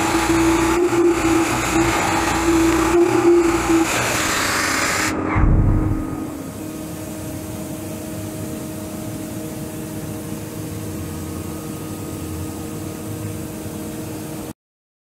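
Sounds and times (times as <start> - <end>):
machine humming with steady tones: 0.0 - 14.6
low rumble: 5.2 - 6.5.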